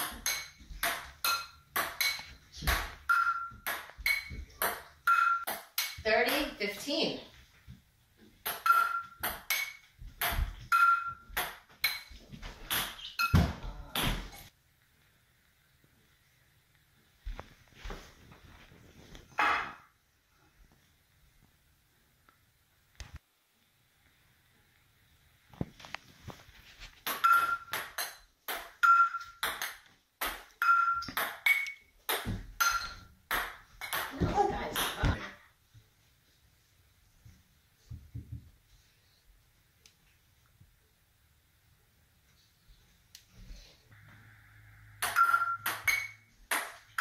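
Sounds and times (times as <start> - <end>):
ball bouncing on hard countertop: 0.0 - 6.6, 8.4 - 14.4, 27.0 - 35.2, 45.0 - 47.0
ping-pong ball hit with frying pans: 0.0 - 6.6, 8.4 - 14.5, 19.4 - 19.9, 27.0 - 35.2, 45.0 - 47.0.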